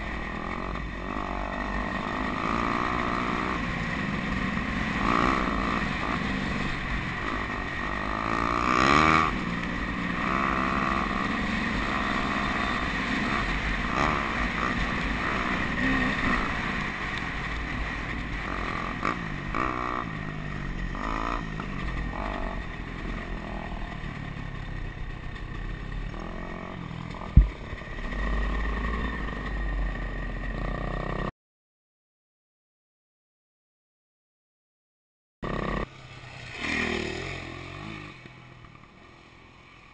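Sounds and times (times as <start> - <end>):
dirt bike engine revving: 0.0 - 31.3, 35.4 - 39.6
low rumble of wind: 0.0 - 31.3.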